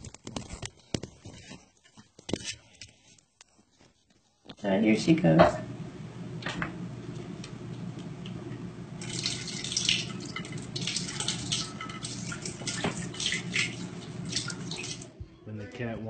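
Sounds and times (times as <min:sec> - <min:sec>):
water splashing from a tap: 0:09.0 - 0:15.1.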